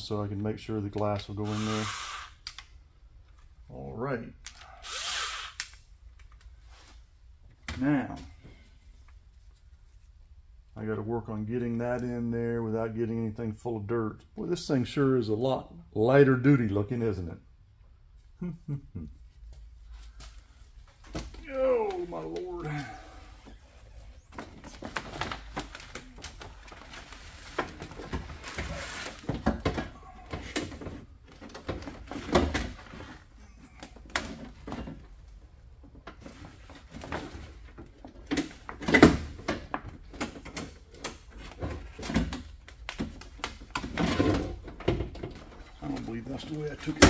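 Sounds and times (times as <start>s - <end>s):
plastic sheet rustling: 24.5s - 29.3s.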